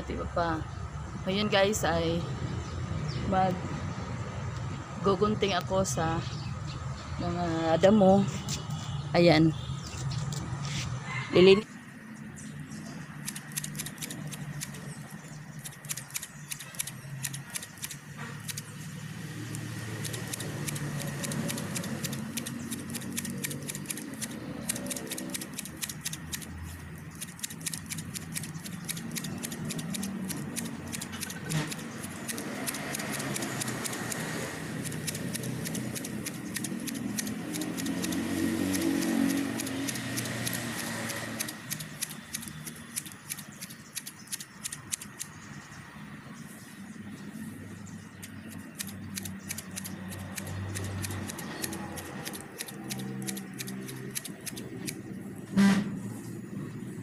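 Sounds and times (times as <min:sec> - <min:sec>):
scissors snipping grass: 0:13.2 - 0:45.4, 0:48.1 - 0:55.0.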